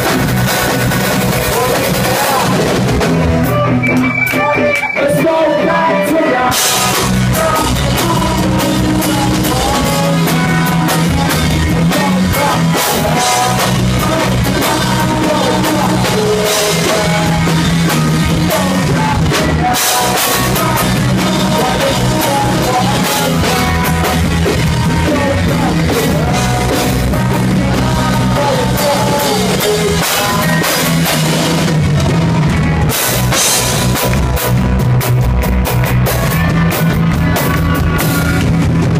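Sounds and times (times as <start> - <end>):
drum kit: 0.0 - 38.9
electric guitars: 0.0 - 38.9
person singing: 1.3 - 31.7.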